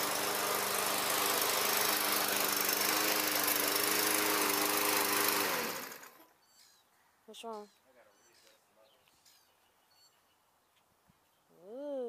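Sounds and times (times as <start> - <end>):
lawn mower engine running: 0.0 - 6.3.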